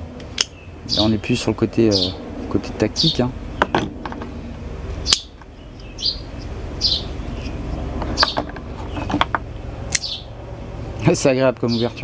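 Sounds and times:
steady low rumble: 0.0s - 12.0s
bird chirps: 0.4s - 2.2s, 2.9s - 3.9s, 4.9s - 9.3s, 10.0s - 10.4s.

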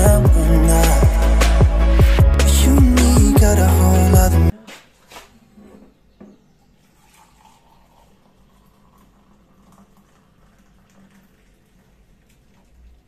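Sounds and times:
tea pouring into mug: 7.0s - 12.8s.

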